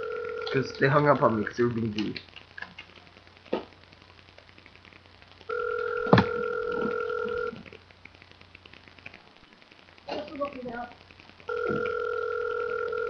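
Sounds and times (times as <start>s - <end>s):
telephone ringback tone: 0.0s - 0.8s, 5.5s - 7.6s, 11.5s - 13.0s.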